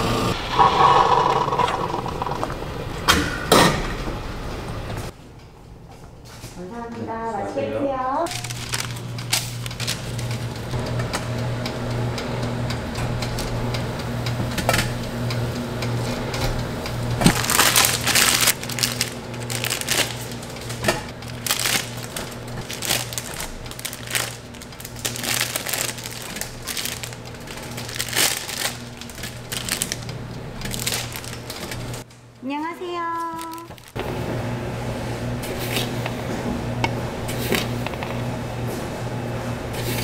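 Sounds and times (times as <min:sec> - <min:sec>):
steady low hum: 0:01.6 - 0:40.0
crisp pastries crunching: 0:08.3 - 0:10.5, 0:17.2 - 0:31.9, 0:33.4 - 0:34.0.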